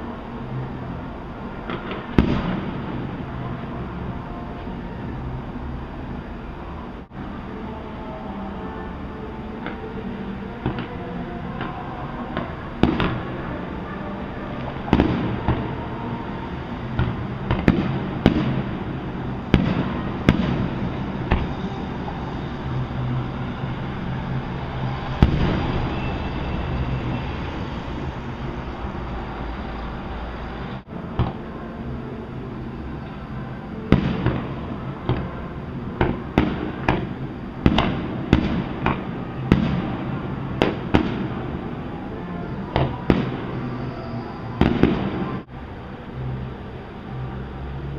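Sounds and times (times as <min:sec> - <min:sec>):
distant fireworks bangs: 0:14.6 - 0:21.7, 0:25.1 - 0:26.4, 0:33.9 - 0:41.8, 0:42.7 - 0:43.8, 0:44.6 - 0:45.4.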